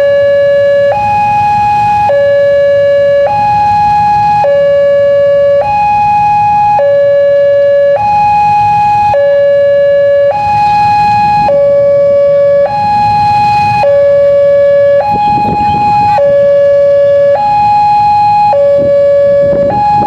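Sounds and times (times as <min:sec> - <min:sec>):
two-tone level crossing siren: 0:00.0 - 0:20.0.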